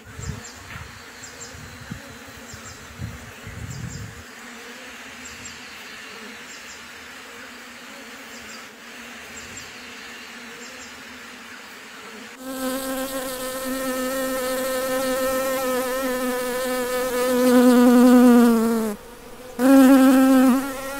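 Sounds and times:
honeybees humming: 12.4s - 20.9s
loud bee buzz sound effect: 12.4s - 20.9s.

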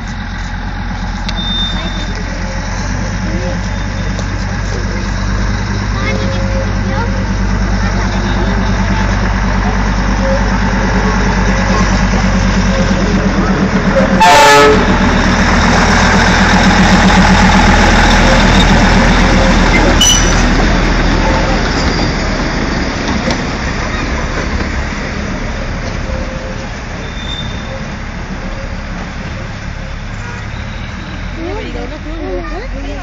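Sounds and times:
diesel locomotive engine throbbing: 0.0s - 33.0s
loud train horn toot: 1.3s - 2.2s, 14.0s - 15.0s.

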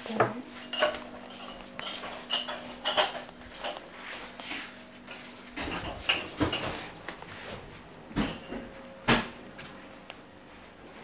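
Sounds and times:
dishes and cups clinking: 0.6s - 3.9s, 5.1s - 6.9s, 8.2s - 8.8s.

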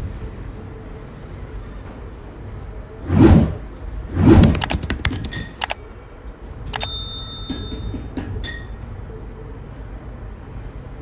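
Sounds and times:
sharp clicks: 4.4s - 5.8s
bell-like ding: 6.8s - 7.9s.

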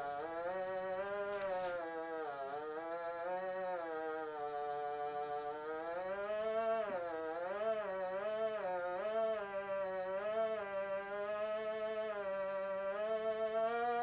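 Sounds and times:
man humming a long note: 0.0s - 14.0s.

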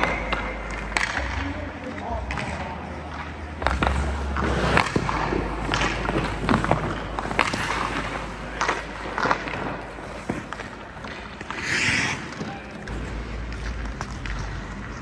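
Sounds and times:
stick striking pucks: 0.0s - 15.0s
skate blades scraping ice: 3.1s - 15.0s.

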